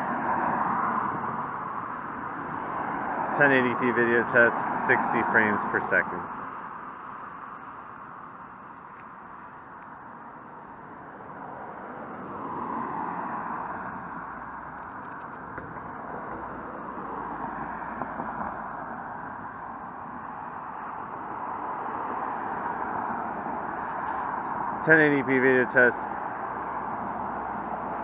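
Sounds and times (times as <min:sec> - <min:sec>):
cars driving past: 0:00.0 - 0:28.0.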